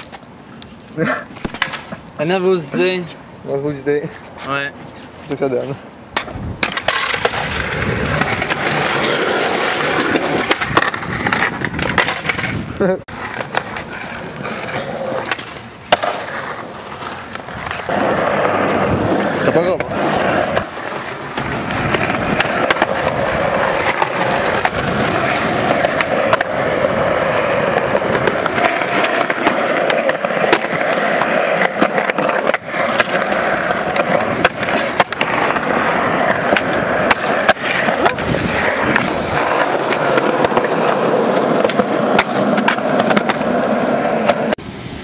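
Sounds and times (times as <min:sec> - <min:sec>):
skateboard wheels rolling on concrete: 0:00.0 - 0:45.0.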